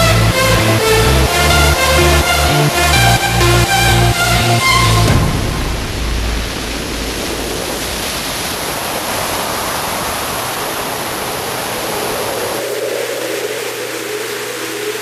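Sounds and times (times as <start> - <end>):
wind roar of airflow: 5.1 - 14.9.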